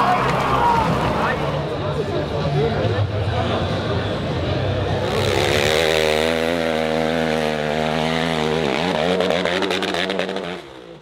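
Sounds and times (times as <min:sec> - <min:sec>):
dirt bike engine revving: 0:04.9 - 0:11.0.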